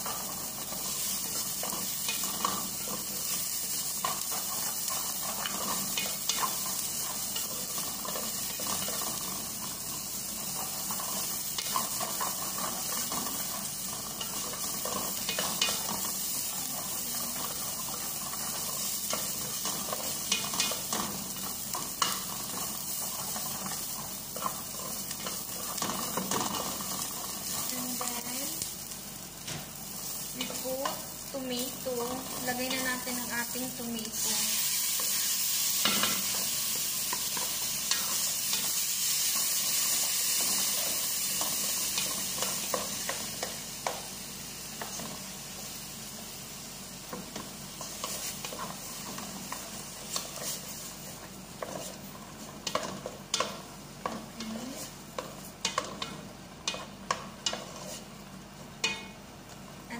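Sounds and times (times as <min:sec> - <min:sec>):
wooden spoon scraping and tapping pot: 0:00.0 - 0:09.8, 0:37.1 - 0:44.1, 0:47.1 - 0:58.2
onions sizzling in hot oil: 0:00.0 - 0:59.9.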